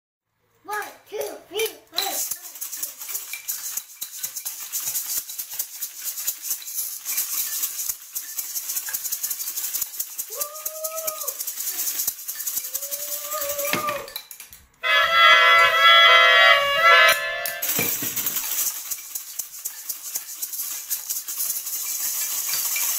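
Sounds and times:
hand percussion rattling: 1.9s - 22.9s
saxophone sustained note: 14.8s - 17.6s
short sliding tones: 14.8s - 17.7s.

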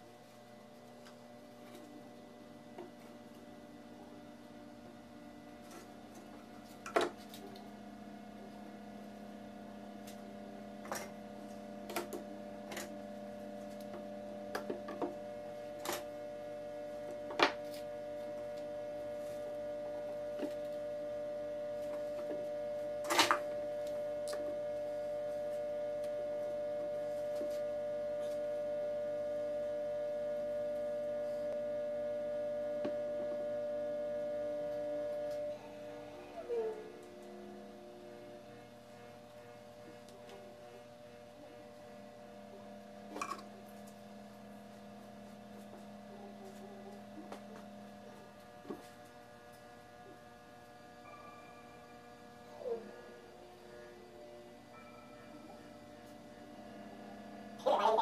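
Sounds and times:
steady multi-tone drone: 0.0s - 58.0s.

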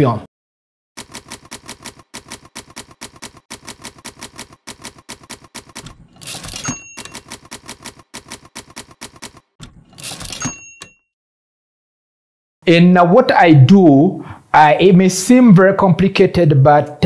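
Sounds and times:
typewriter carriage return: 1.0s - 11.0s
typewriter key strikes: 1.0s - 11.0s
typewriter margin bell: 1.0s - 11.1s.

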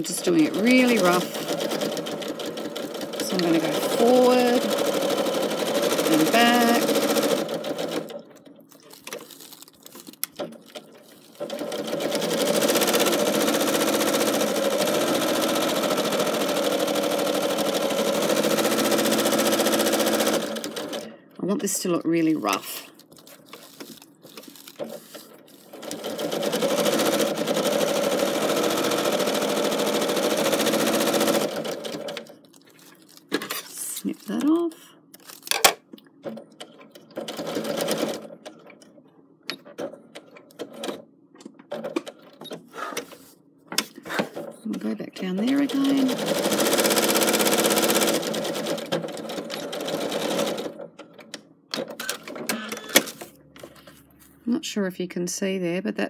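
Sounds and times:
sewing machine stitching: 0.0s - 8.3s, 10.4s - 21.1s, 24.4s - 32.3s, 37.1s - 38.4s, 44.2s - 50.8s, 51.7s - 53.2s.

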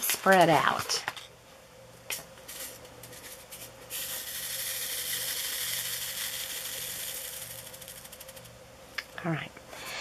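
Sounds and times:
plastic beads rattling in tray: 2.5s - 8.5s.

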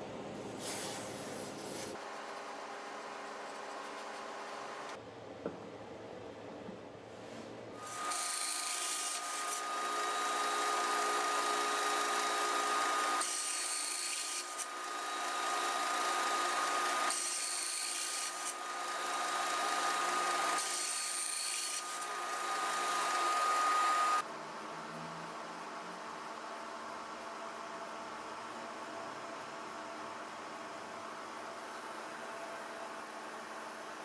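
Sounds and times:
band saw whining: 7.8s - 24.2s.

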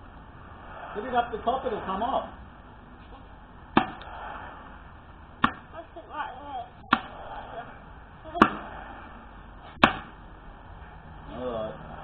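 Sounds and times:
axe chopping log: 3.8s - 4.1s, 5.4s - 5.7s, 6.9s - 7.2s, 8.4s - 8.7s, 9.7s - 10.2s.

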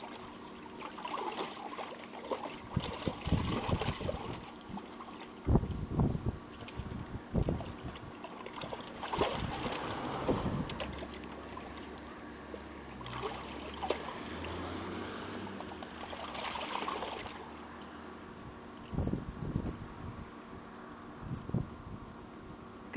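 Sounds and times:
water sloshing and splashing: 0.0s - 18.0s
dog stomping in water tub: 0.8s - 11.9s, 15.6s - 17.4s.

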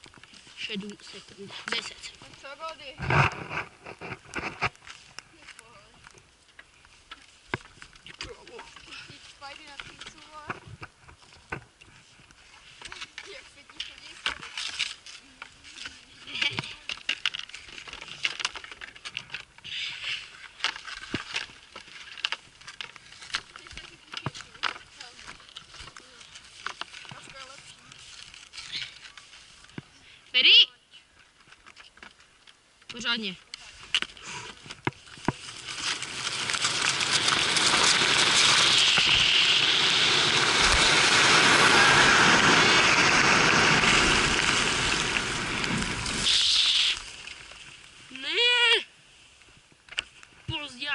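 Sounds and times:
skis and gear clicking: 0.0s - 29.8s, 33.5s - 48.0s
skis sliding on snow: 33.6s - 48.1s
short scraping rush: 35.4s - 47.6s.

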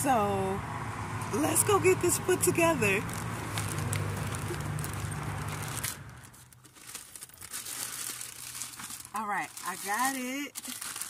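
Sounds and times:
packaging tearing and crinkling: 3.0s - 11.0s.

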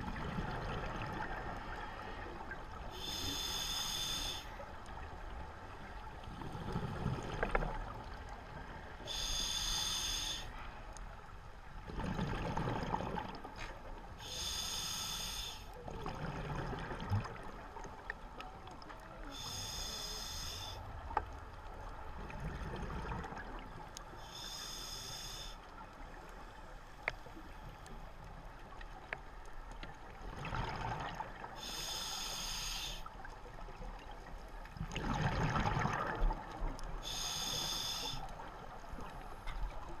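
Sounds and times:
regulator inhalation hiss: 2.9s - 4.6s, 9.0s - 10.6s, 14.2s - 15.7s, 19.3s - 20.8s, 24.2s - 25.6s, 31.6s - 33.1s, 37.0s - 38.3s
exhaled bubbles rushing: 34.8s - 36.6s.

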